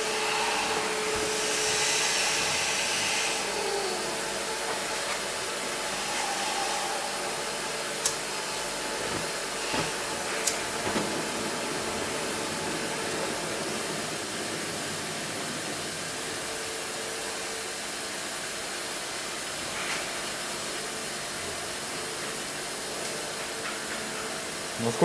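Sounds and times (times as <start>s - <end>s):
gas burner hissing: 0.0s - 17.4s.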